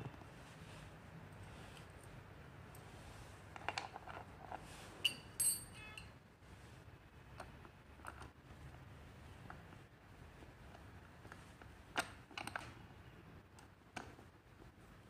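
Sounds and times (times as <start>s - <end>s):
short metallic clinks: 5.0s - 6.2s.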